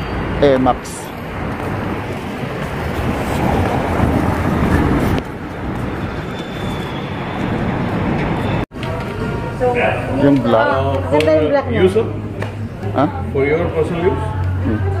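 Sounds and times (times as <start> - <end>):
wind rumbling on microphone: 0.0 - 8.6
road traffic: 0.0 - 15.0.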